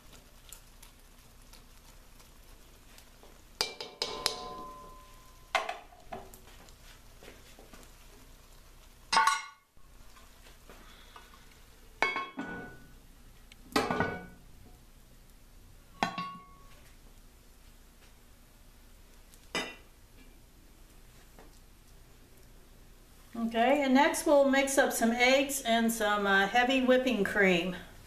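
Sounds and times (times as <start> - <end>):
cast-iron lid clanking on: 3.6 - 5.9
spatula knocking cast-iron pot: 3.6 - 6.3.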